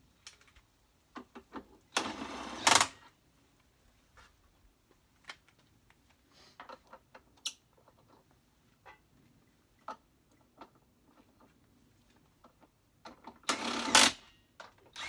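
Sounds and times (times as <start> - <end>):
cordless drill: 2.0 - 3.0, 13.5 - 14.3.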